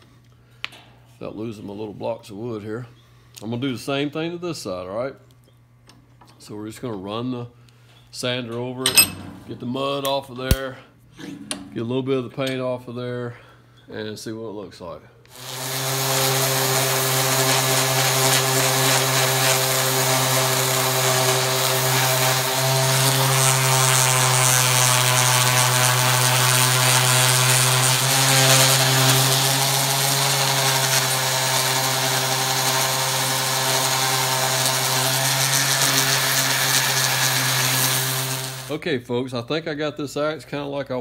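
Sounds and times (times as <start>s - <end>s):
orbit sander on steel: 15.3s - 38.7s.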